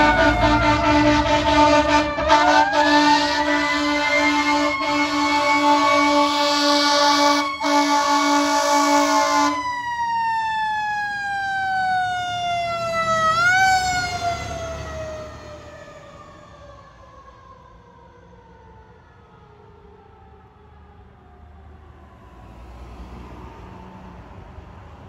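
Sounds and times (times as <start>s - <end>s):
fire engine air horns: 0.0s - 10.3s
mechanical siren wailing: 0.0s - 17.4s.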